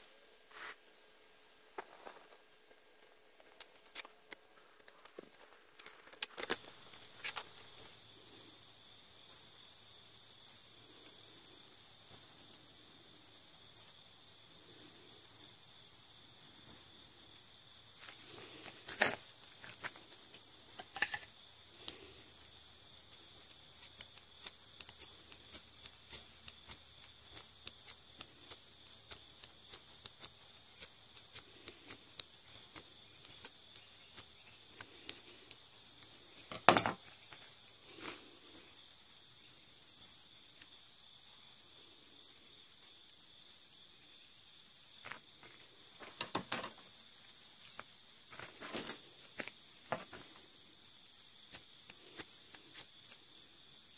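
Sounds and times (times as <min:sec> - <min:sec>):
crickets chirping: 0:00.0 - 0:53.9
knife shaving wood: 0:18.0 - 0:36.4, 0:51.4 - 0:53.5.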